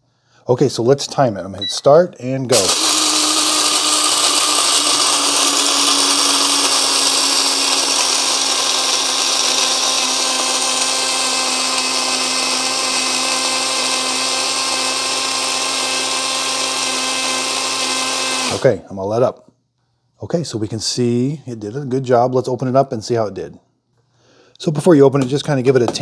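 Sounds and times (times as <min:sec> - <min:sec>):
blade coffee grinder grinding beans: 0:02.5 - 0:18.7.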